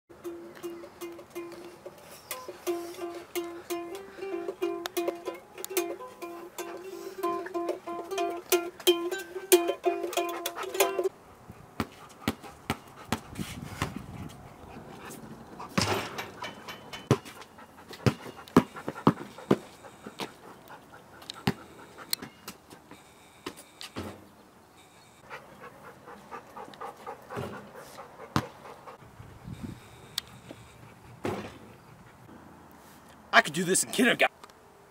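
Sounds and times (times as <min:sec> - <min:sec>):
hard breathing: 0:00.8 - 0:04.8, 0:06.0 - 0:08.0, 0:10.1 - 0:24.0, 0:24.7 - 0:33.3
basketball bouncing on concrete: 0:11.8 - 0:14.1, 0:17.1 - 0:19.7, 0:28.3 - 0:28.6.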